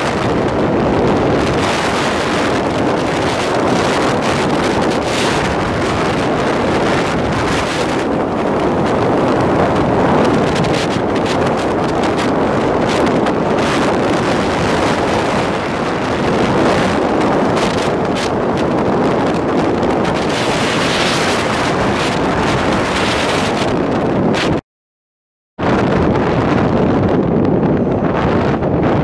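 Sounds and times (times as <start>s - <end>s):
road noise: 0.0s - 24.6s, 25.6s - 29.0s
wind buffeting microphone: 0.0s - 24.6s, 25.6s - 29.0s.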